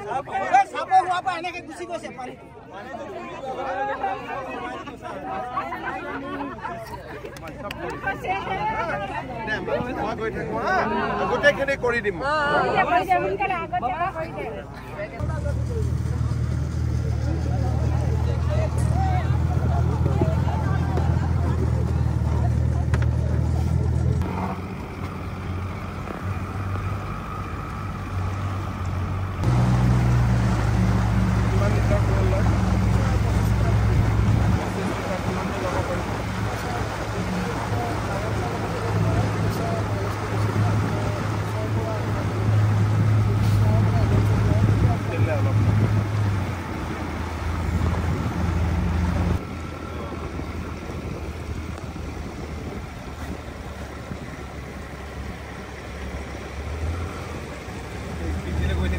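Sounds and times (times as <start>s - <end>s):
outboard motor running: 15.2s - 58.9s
rush of wind and water: 18.1s - 58.9s.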